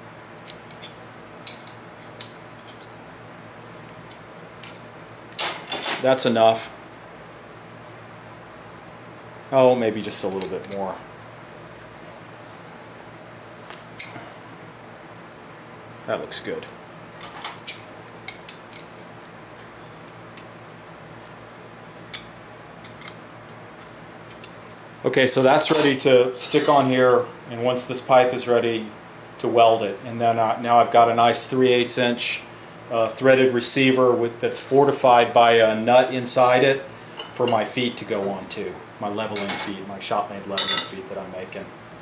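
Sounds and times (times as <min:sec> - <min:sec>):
tools clattering on steel bench: 0:05.4 - 0:06.1, 0:10.2 - 0:10.9, 0:17.1 - 0:19.1, 0:25.6 - 0:26.0, 0:39.4 - 0:39.8, 0:40.6 - 0:41.0.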